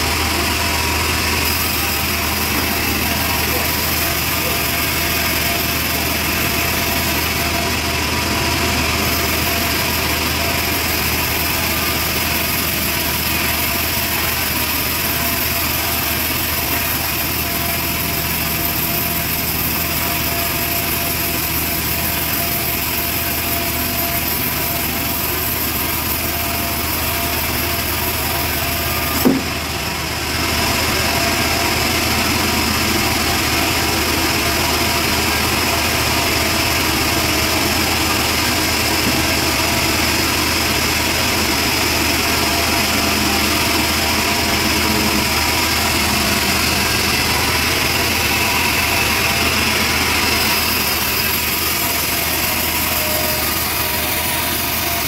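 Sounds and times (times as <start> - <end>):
band saw cutting wood: 0.0 - 55.0
sharp knock: 29.2 - 29.5.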